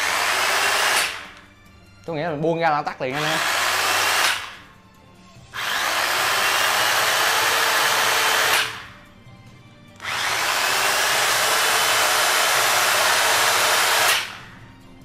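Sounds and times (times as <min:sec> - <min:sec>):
electric chainsaw running: 0:00.0 - 0:01.4, 0:03.1 - 0:04.6, 0:05.6 - 0:09.0, 0:10.0 - 0:14.5.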